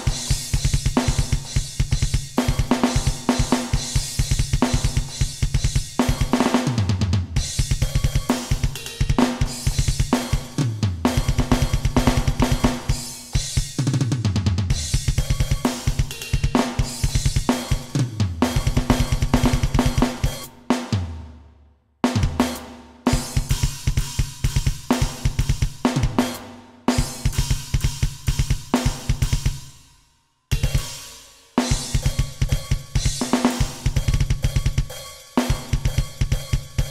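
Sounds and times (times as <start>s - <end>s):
snare hi-hat and cymbals: 0.0s - 21.2s, 22.0s - 36.9s.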